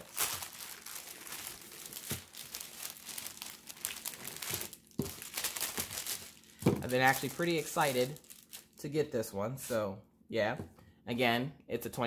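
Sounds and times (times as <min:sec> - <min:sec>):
plastic bag crinkling: 0:00.0 - 0:08.9.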